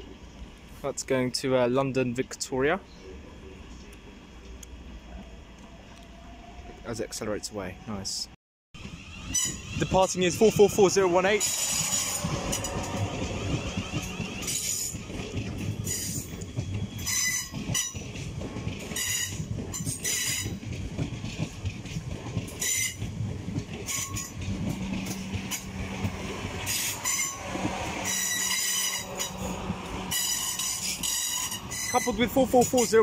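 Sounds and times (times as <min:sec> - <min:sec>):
high-pitched wheel squeal: 0:08.8 - 0:15.1, 0:16.9 - 0:17.9, 0:26.6 - 0:32.9
electric train rolling past: 0:08.8 - 0:33.0
wheels clattering over rails: 0:08.8 - 0:33.0.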